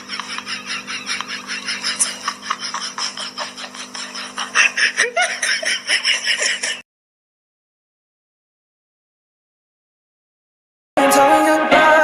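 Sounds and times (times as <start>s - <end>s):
person laughing: 0.0s - 6.8s.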